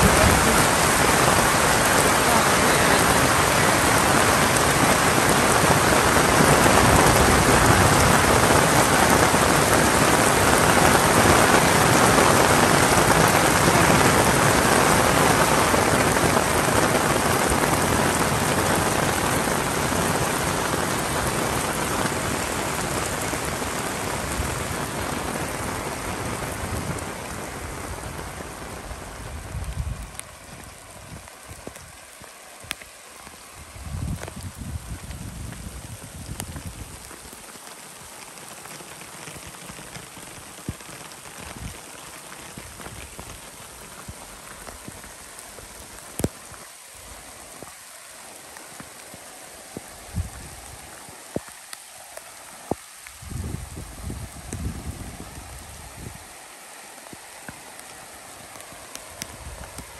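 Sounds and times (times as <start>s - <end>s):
heavy rain falling: 0.0s - 59.9s.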